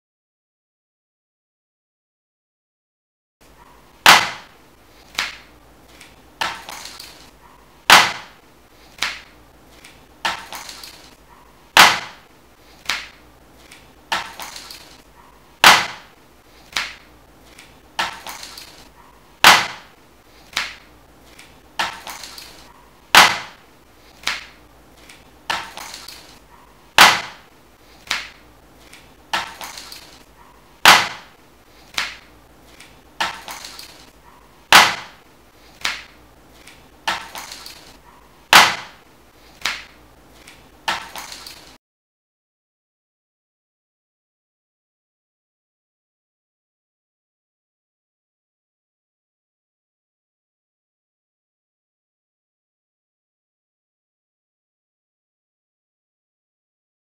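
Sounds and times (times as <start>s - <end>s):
sharp knocks: 4.0s - 4.6s, 7.9s - 8.4s, 11.8s - 12.3s, 15.6s - 16.2s, 19.4s - 20.0s, 23.1s - 23.6s, 27.0s - 27.5s, 30.8s - 31.4s, 34.7s - 35.2s.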